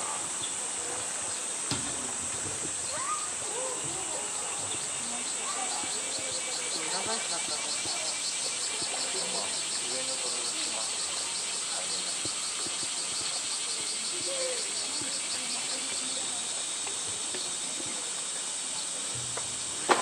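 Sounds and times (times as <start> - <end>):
insects buzzing: 0.0 - 20.0.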